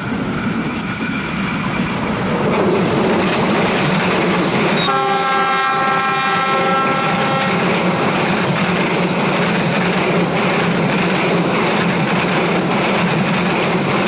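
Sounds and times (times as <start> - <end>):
train rumbling past: 0.0 - 14.0
locomotive horn: 4.8 - 7.8.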